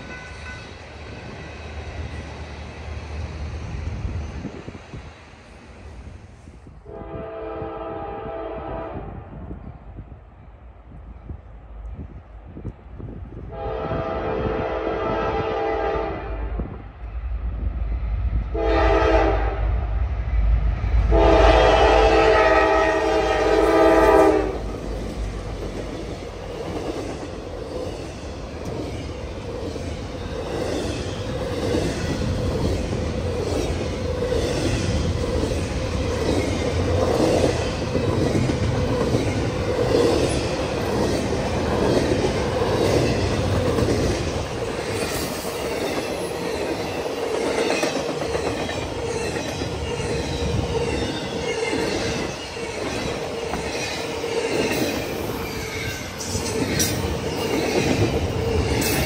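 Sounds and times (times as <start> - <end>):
train cars rumbling past: 0.0 - 59.0
locomotive air horn blasts: 6.8 - 9.2, 13.5 - 16.7, 18.5 - 19.6, 21.1 - 24.7.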